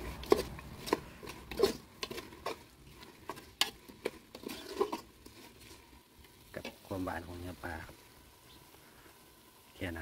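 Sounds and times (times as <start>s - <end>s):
metal spoon scraping a pot: 0.0s - 6.9s.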